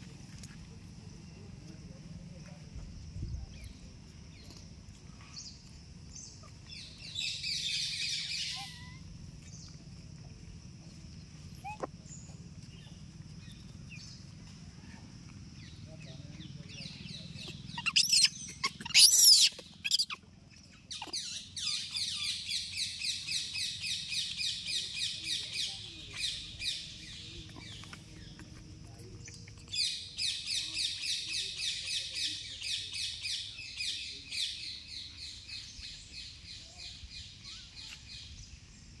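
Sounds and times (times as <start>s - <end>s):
shrill animal cries: 8.2s - 9.1s, 17.8s - 20.2s.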